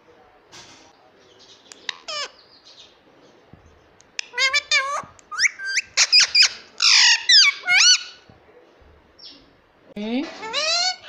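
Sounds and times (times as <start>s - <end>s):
parakeet squawking: 1.9s - 2.4s, 4.2s - 8.3s, 10.3s - 11.0s.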